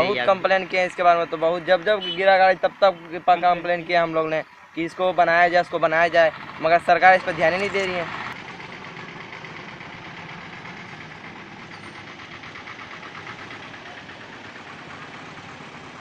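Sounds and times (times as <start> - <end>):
bus engine running: 0.0 - 16.0.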